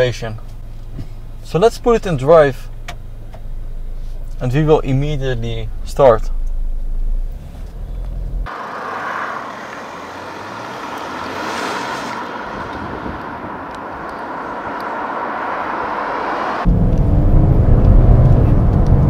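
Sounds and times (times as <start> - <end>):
approaching traffic: 5.7 - 19.0
car tyres on road passing: 6.6 - 19.0.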